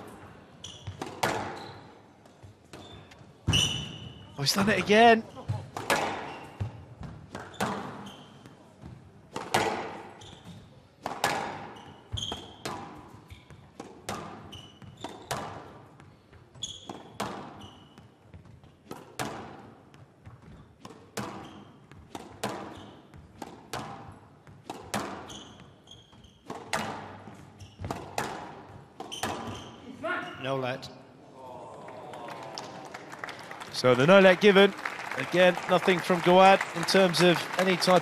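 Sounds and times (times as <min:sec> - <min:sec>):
shoes squeaking on court floor: 0:00.0 - 0:30.5
squash ball racket and wall strikes: 0:00.8 - 0:01.6, 0:05.4 - 0:29.8.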